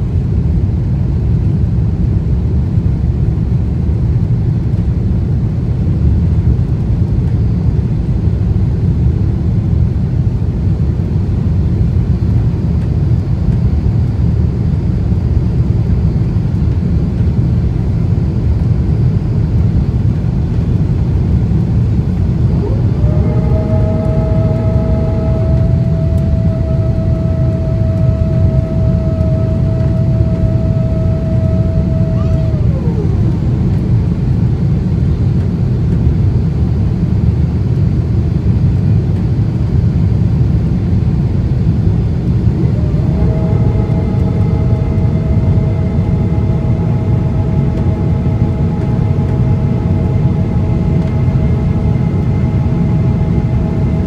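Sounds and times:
cabin engine and airflow rumble: 0.0 - 54.0
sliding whine: 21.8 - 34.4, 41.6 - 54.0.

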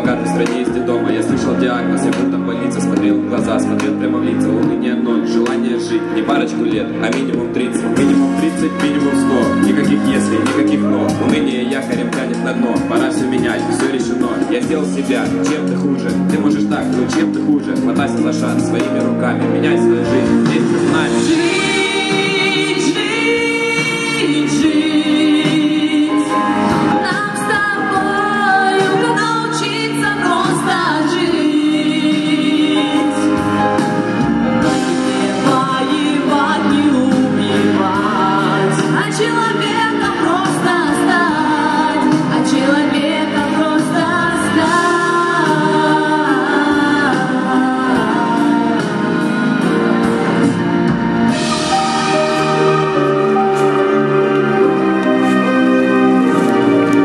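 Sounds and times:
amplified backing music: 0.0 - 57.0
women singing into microphones: 7.6 - 11.6, 21.0 - 33.7, 34.6 - 49.8.

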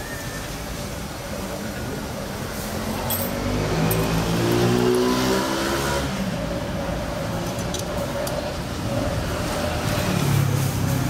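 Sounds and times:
vehicle engine passing: 2.6 - 7.3.

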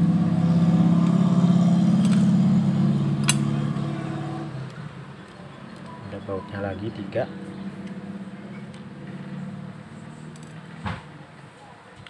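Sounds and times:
vehicle engine humming: 0.0 - 11.9
sharp click: 3.2 - 3.5.

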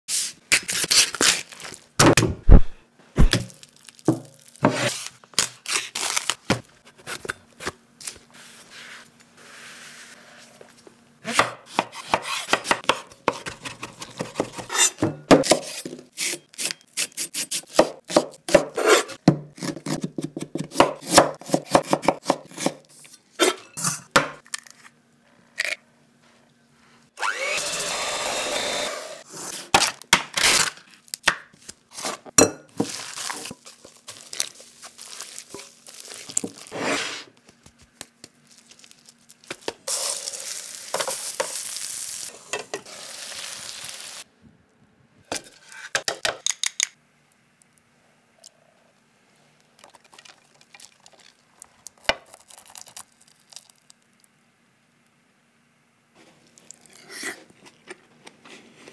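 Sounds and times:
knife chopping on wooden board: 11.3 - 16.0, 17.7 - 22.8.

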